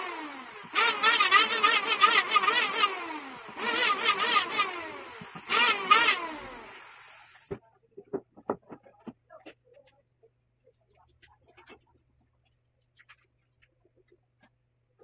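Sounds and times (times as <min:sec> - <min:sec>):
power tool motor whirring: 0:00.0 - 0:07.5.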